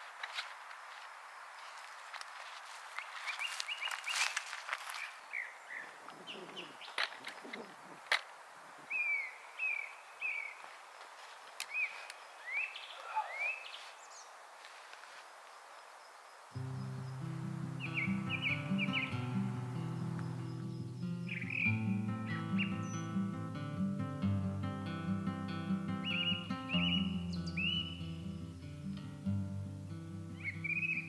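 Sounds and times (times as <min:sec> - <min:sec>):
faint outdoor hiss: 0:00.0 - 0:31.0
small songbird chirping: 0:03.0 - 0:08.0, 0:08.9 - 0:10.7, 0:11.6 - 0:14.4, 0:15.6 - 0:23.8, 0:25.0 - 0:29.2, 0:30.2 - 0:31.0.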